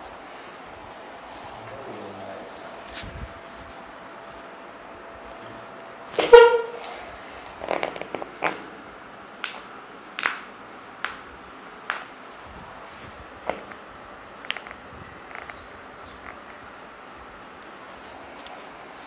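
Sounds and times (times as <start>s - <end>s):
vehicle horn honk: 6.1s - 7.0s.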